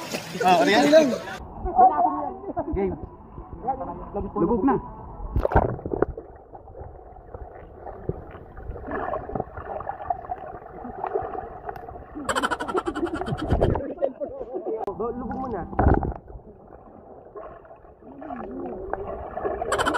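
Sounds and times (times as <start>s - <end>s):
water splashing: 0.0s - 1.4s, 5.3s - 13.8s, 15.2s - 19.9s
underwater gurgling and bubbles: 4.8s - 13.8s, 15.3s - 19.9s
underwater clicks and knocks: 15.7s - 16.3s.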